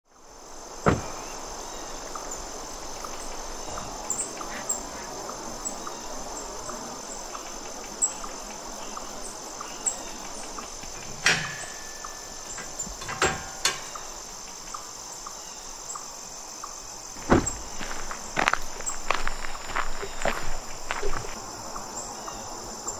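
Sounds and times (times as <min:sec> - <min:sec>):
crickets chirring: 0:00.0 - 0:22.9
sharp knocks and clicks: 0:12.6 - 0:14.1.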